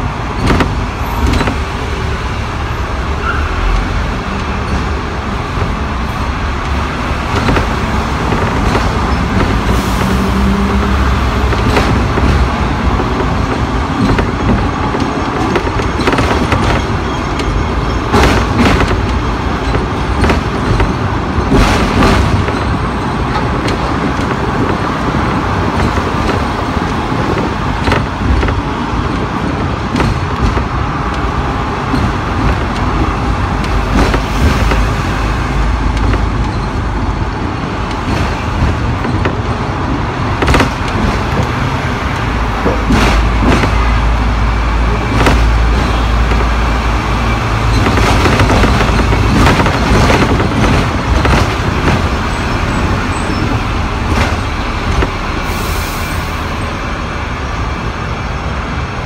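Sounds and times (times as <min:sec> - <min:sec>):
tram wheels rumbling on rails: 0:00.0 - 0:59.0.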